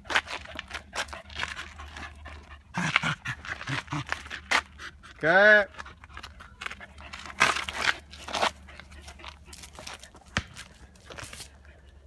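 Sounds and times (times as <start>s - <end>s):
dog tearing at a football: 0.0s - 4.8s, 6.8s - 11.6s.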